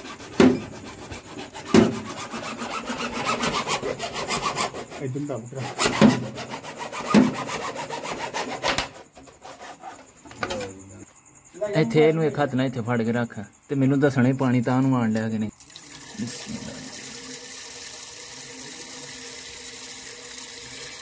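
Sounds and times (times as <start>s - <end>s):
hacksaw cutting plastic pipe: 0.0s - 10.2s
knocks: 0.4s - 0.7s, 1.7s - 2.1s, 7.1s - 7.4s.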